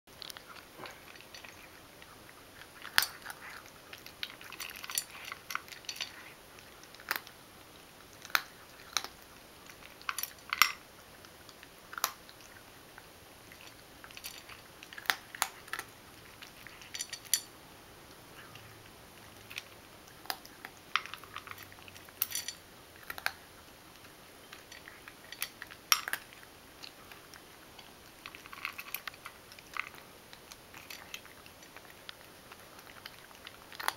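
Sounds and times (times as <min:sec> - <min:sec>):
cat crunching dry kibble: 0:00.1 - 0:17.5, 0:18.1 - 0:33.9.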